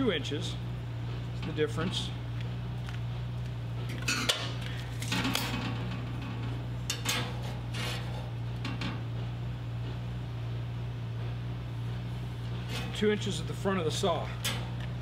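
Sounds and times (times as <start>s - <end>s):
metal tools clattering on steel: 3.9s - 8.1s.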